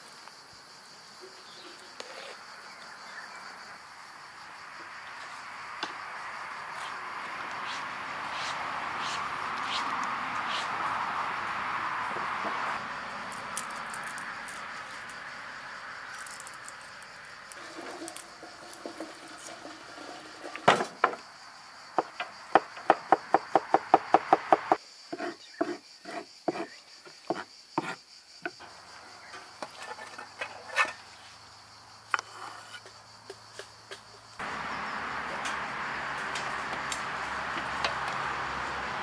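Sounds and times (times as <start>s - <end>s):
knife chopping on wooden board: 22.9s - 26.7s.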